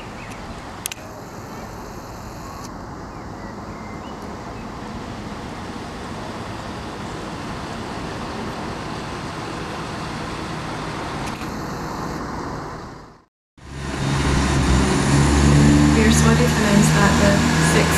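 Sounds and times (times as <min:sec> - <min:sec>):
diesel train engine rumble: 0:02.8 - 0:17.9.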